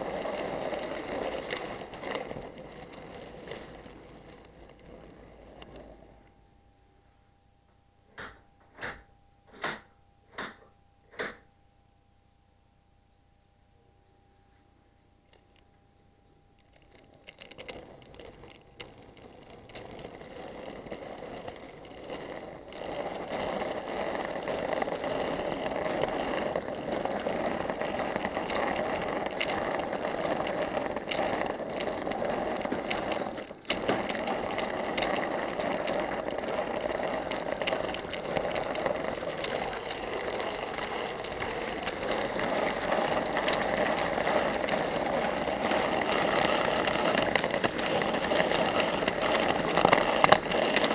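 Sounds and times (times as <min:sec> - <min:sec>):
model train wheels rattling on rails: 0:00.0 - 0:06.3, 0:16.6 - 0:50.9.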